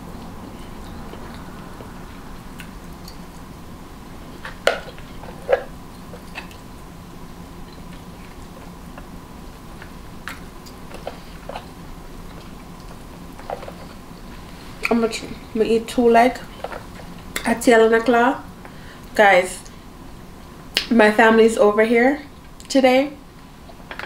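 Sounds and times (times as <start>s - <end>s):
faint steady hum: 0.0s - 24.0s
person chewing: 0.2s - 3.4s.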